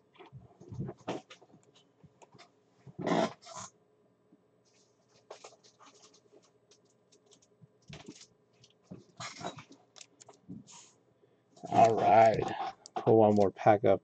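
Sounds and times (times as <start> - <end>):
card packs clicking and rustling: 11.6 - 13.5.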